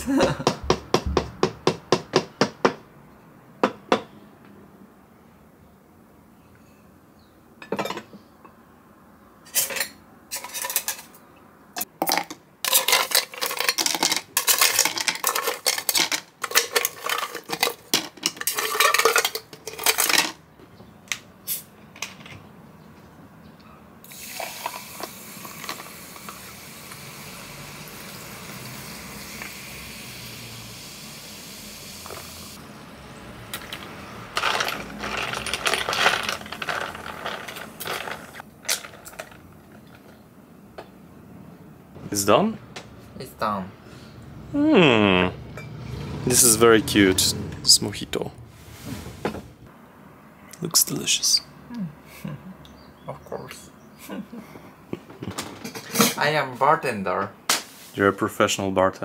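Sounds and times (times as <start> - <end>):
ice clinking in jar: 12.0 - 20.3, 34.4 - 40.0
ice clattering in cocktail shaker: 12.0 - 20.4, 33.6 - 40.0
steady hiss: 24.0 - 32.6.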